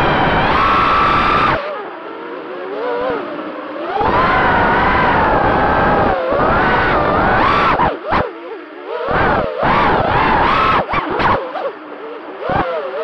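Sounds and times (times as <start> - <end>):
drone motors whining: 0.0 - 13.0
wind rush: 4.0 - 7.9.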